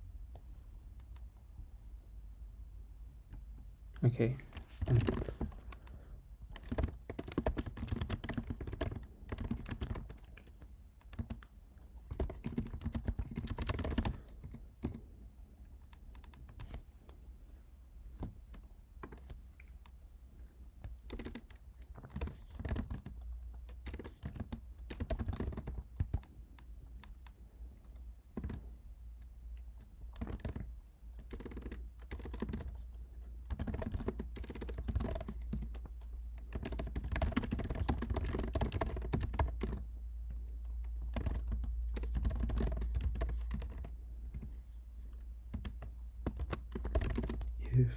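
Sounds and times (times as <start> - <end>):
computer keyboard typing: 4.3 - 15.1, 15.8 - 16.8, 18.2 - 19.4, 20.8 - 28.8, 30.1 - 44.5, 45.5 - 47.6.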